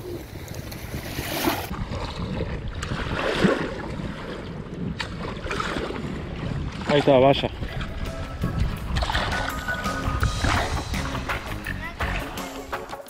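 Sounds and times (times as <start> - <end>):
waves lapping on shore: 0.0 - 8.0
wind buffeting microphone: 0.0 - 12.4.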